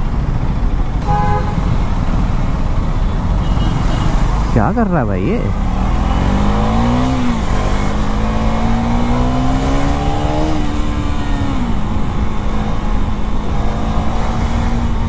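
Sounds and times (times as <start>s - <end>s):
motorcycle engine revving: 5.5s - 15.0s.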